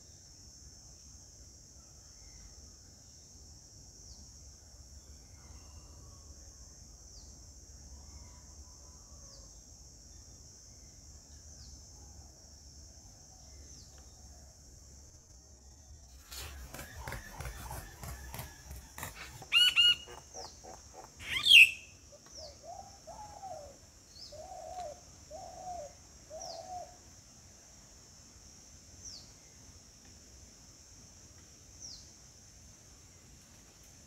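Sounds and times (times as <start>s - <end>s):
high insect drone: 0.0s - 34.0s
faint chirps: 13.0s - 27.0s
bird wings flapping: 16.1s - 20.8s
short low bird calls: 16.2s - 23.7s
loud bird calls: 16.2s - 26.9s.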